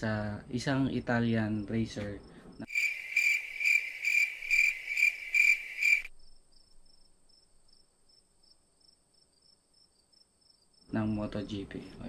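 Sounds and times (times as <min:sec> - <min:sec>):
insect chirping in loud pulses: 0:02.2 - 0:11.3
faint quick insect chirping: 0:02.2 - 0:12.0.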